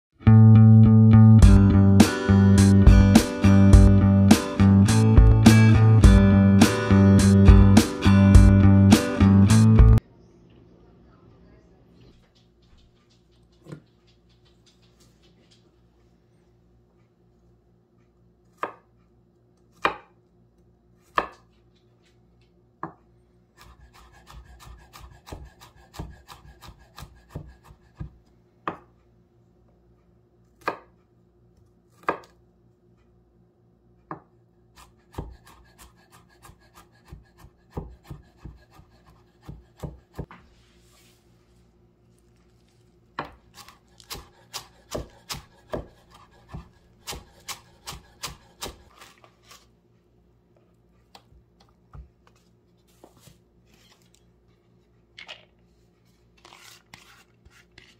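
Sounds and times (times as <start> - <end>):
knife chopping on wooden board: 18.5 - 18.9, 19.8 - 20.2, 21.1 - 21.5, 23.6 - 28.9, 30.6 - 30.9, 32.0 - 32.4, 34.1 - 40.4, 43.2 - 49.6.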